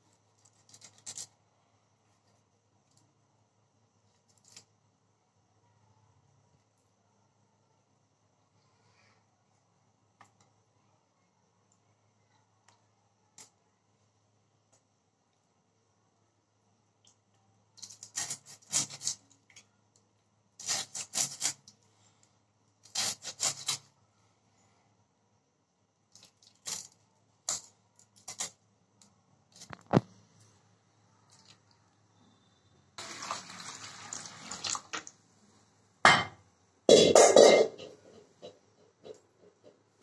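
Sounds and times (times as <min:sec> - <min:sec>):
knife cutting fish: 0:17.8 - 0:19.2, 0:22.8 - 0:23.9.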